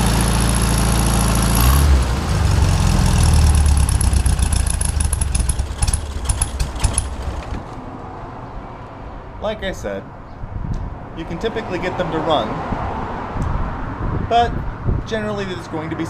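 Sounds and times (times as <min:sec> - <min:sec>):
car engine running: 0:00.0 - 0:07.9
engine pops: 0:02.9 - 0:07.9.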